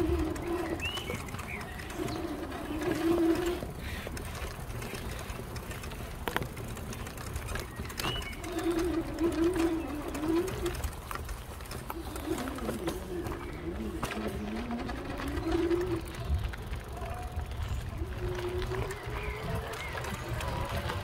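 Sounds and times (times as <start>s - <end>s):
pigeon cooing: 0.0s - 4.1s, 7.9s - 11.0s, 11.7s - 17.2s, 17.8s - 21.0s
small bird chirping: 0.2s - 3.4s.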